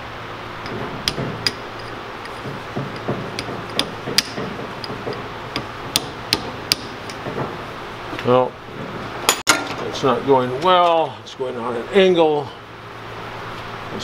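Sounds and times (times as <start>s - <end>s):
hammer tapping on steel punch: 2.3s - 7.6s.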